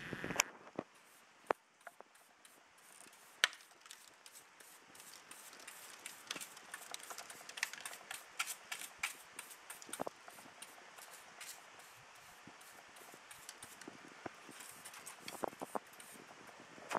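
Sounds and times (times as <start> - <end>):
brush rubbing on bench: 14.5 - 16.3.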